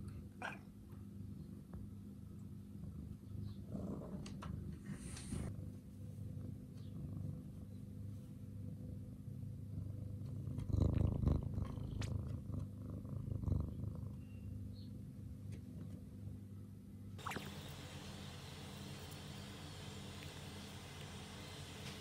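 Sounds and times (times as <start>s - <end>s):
cat purring: 2.4s - 14.4s, 17.4s - 22.0s.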